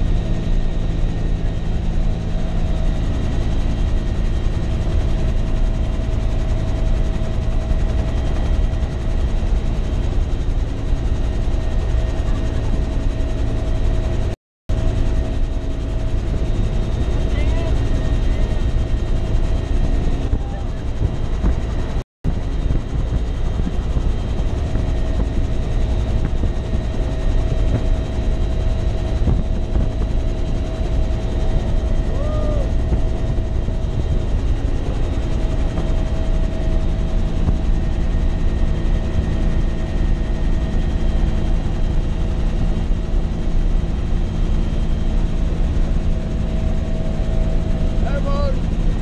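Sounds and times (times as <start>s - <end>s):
helicopter engine and rotor: 0.0s - 49.0s.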